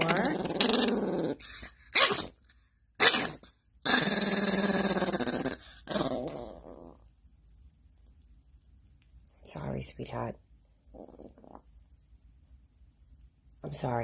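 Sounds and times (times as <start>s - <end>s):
small dog growling: 0.0s - 7.1s, 10.9s - 11.7s.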